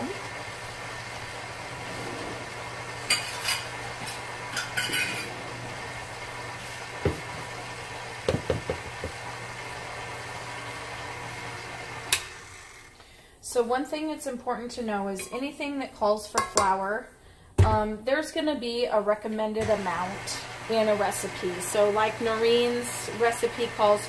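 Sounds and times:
stand mixer motor running: 5.2 - 13.0, 19.6 - 24.0.

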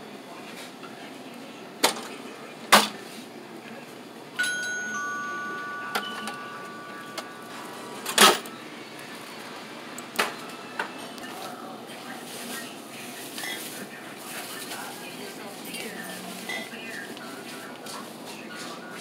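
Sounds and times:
two-note ding-dong chime: 4.4 - 8.1.

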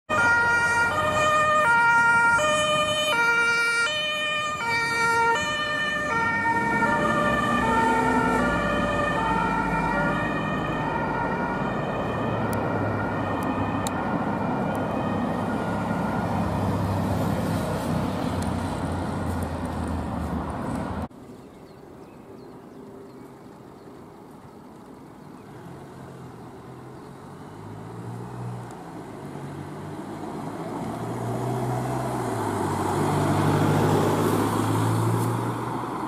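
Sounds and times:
two-tone ambulance siren: 0.1 - 17.1
traffic noise: 0.1 - 36.0.

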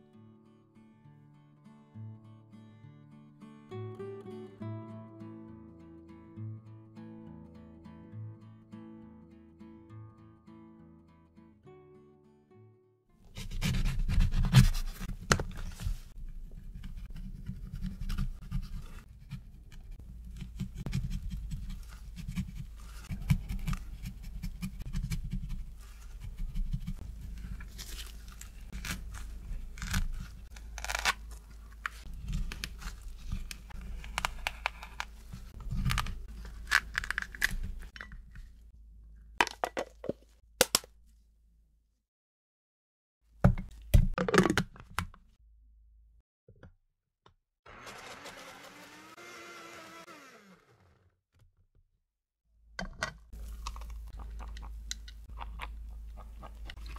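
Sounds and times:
knife crunching through lemon: 27.7 - 37.9.

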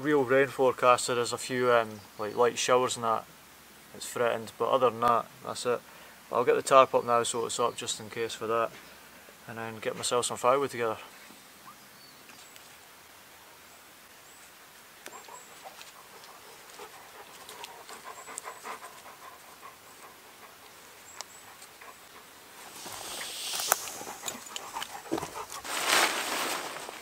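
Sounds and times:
cord rubbing on bark: 15.1 - 27.0
branch rustling: 20.6 - 27.0.

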